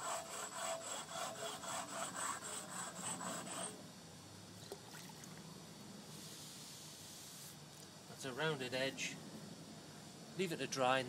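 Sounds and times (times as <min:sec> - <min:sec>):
abrasive block rasping on concrete: 0:00.0 - 0:03.8.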